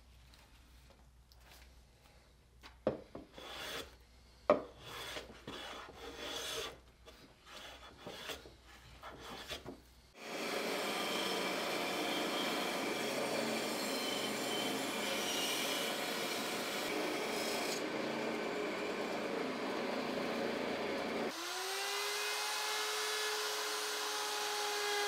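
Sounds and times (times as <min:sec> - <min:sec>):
hand plane shaving wood: 0:04.8 - 0:09.7
bandsaw cutting a board: 0:10.2 - 0:25.0.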